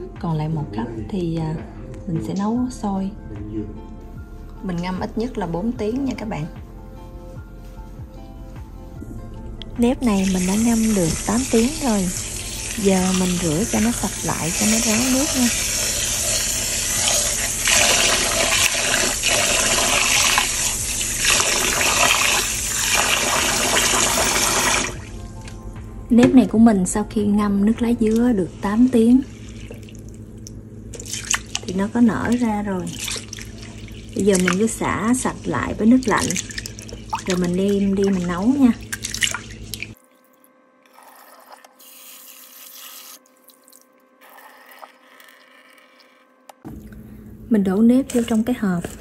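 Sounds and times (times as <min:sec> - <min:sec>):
tap water running into bowl: 0:10.1 - 0:25.6, 0:29.3 - 0:40.0
water sloshing in a bowl: 0:28.0 - 0:41.7.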